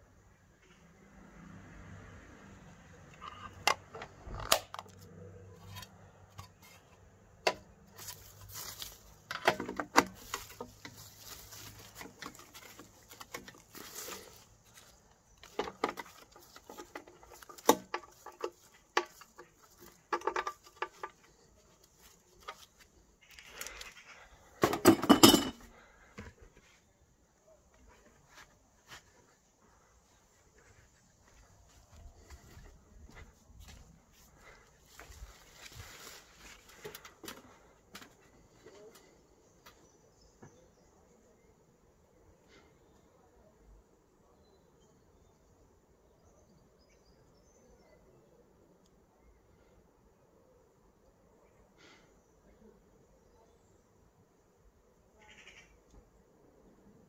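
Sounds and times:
handling clicks and knocks: 3.1 - 22.9, 24.6 - 25.7
rustling: 7.9 - 24.6, 34.3 - 39.2.

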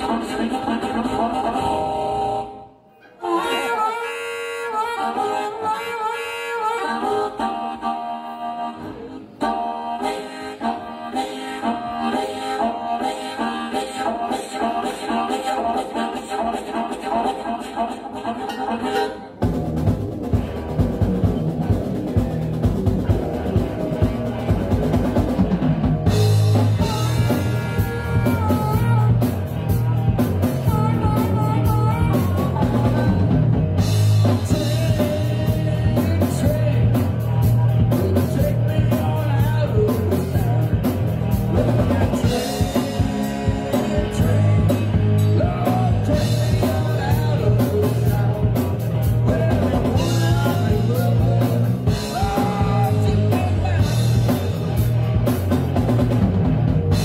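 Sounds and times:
man singing: 0.0 - 2.6, 26.2 - 54.6
harmonica: 0.0 - 19.5, 26.0 - 56.1
rock band playing: 0.0 - 57.0.

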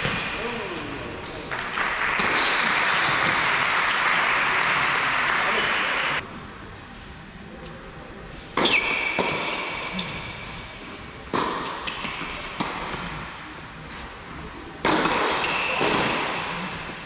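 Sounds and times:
tennis ball bouncing: 11.3 - 13.2, 14.8 - 16.8
tennis ball hit by racket: 11.3 - 13.2, 14.8 - 16.9.

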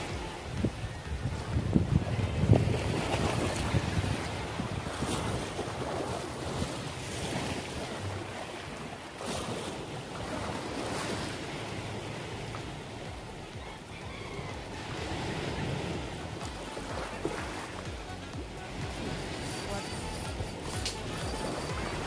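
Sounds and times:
wind buffeting microphone: 0.0 - 13.3
sea waves washing on shore: 0.0 - 22.0.

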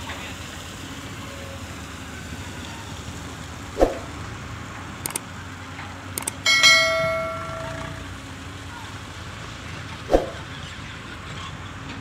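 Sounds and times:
quick clicks: 5.0 - 5.2, 6.2 - 6.4.

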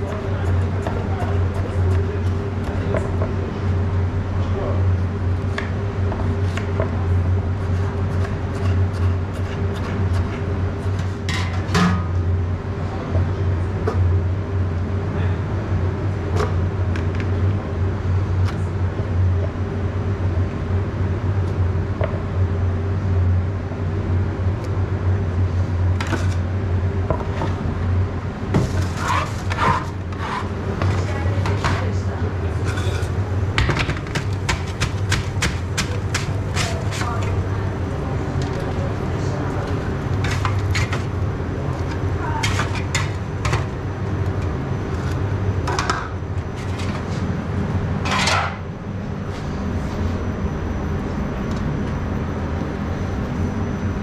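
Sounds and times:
low machine hum: 0.0 - 54.0
food preparation clicks and scrapes: 5.5 - 11.9, 28.6 - 31.9, 32.6 - 37.4, 39.6 - 46.0.

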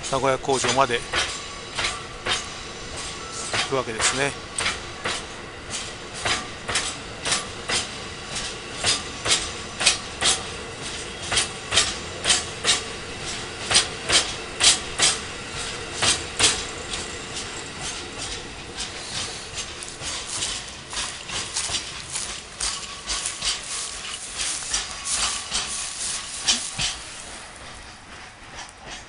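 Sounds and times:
train rolling rumble: 0.0 - 29.0
train wheels clacking over rail joints: 0.0 - 29.0.

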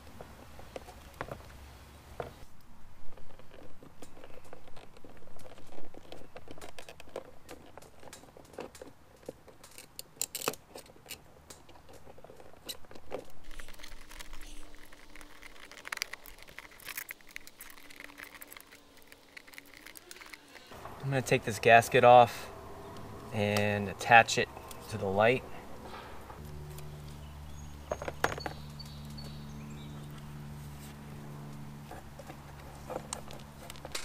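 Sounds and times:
wires handled in electrical box: 3.6 - 21.6.

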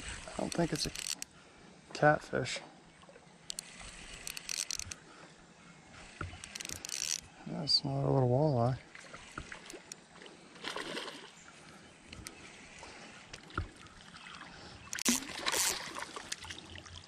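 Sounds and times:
running water: 0.0 - 1.2, 5.9 - 17.0
fish splashing and thrashing: 3.1 - 5.1, 5.9 - 7.3, 8.8 - 17.0.

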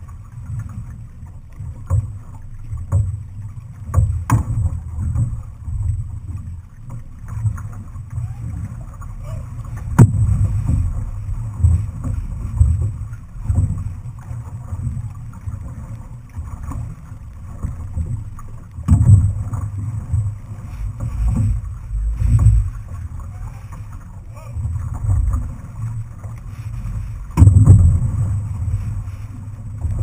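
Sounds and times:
water rushing along hull: 0.0 - 30.0
wind rumble on microphone: 0.0 - 30.0
paddle stroke thumps: 3.8 - 5.4, 9.7 - 13.8, 17.5 - 30.0.

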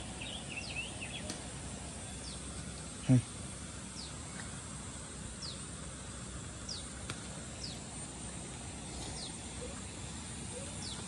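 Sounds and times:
bird calling: 0.0 - 1.4, 7.6 - 11.0
steady background hiss: 0.0 - 11.0.

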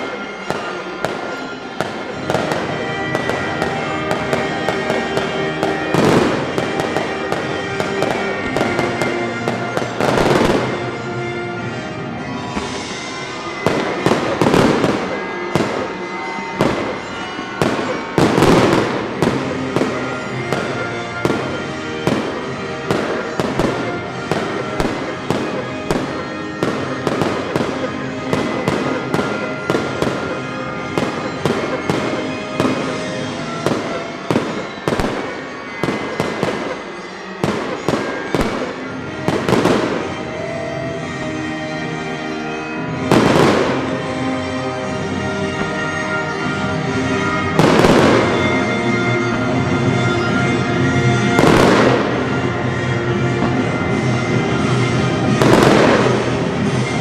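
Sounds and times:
fireworks bangs and crackles: 0.0 - 57.0
music: 0.0 - 57.0
heavy firework booms: 55.3 - 57.0.

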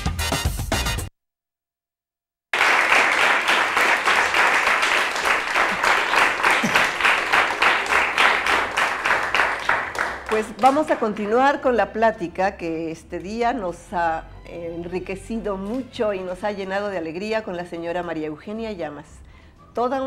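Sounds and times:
studio audience applauding: 2.6 - 11.4.

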